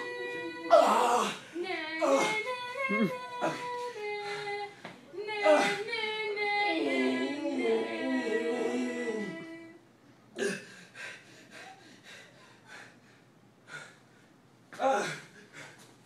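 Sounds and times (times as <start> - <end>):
person singing wordless tune: 0.0 - 9.8.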